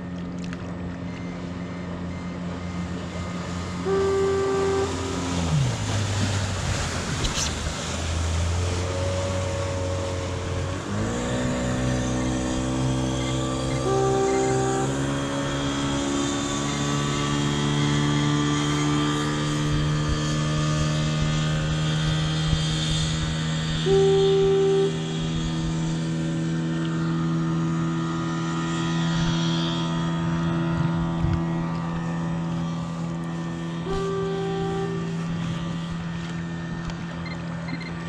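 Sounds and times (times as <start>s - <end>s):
motor humming and whining: 0.0s - 38.0s
wind: 0.0s - 38.0s
short beep: 1.0s - 5.7s, 23.9s - 25.4s, 33.8s - 35.3s, 37.2s - 38.0s.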